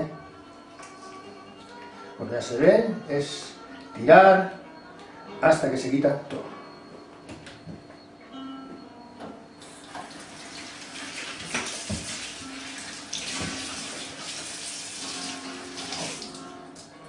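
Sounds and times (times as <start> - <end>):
hands rinsing under water: 10.4 - 16.4
tap running into metal sink: 11.0 - 12.4, 13.1 - 14.5.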